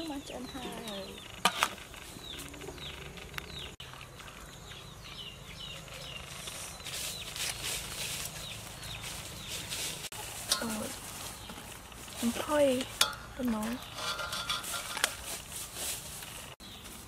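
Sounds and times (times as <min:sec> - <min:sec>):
rustling: 0:00.0 - 0:17.0
metal tongs scraping a pot: 0:12.3 - 0:15.6.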